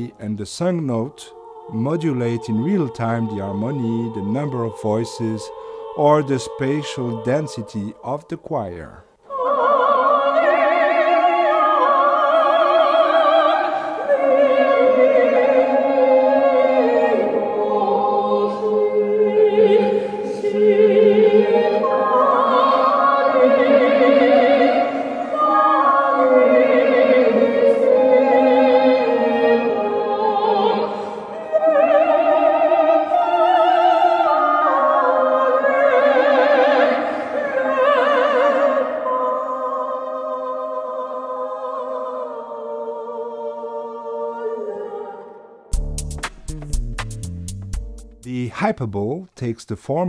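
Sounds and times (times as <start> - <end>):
harmonized choir of voices: 0.0 - 45.8
woman singing operatically: 9.2 - 42.4.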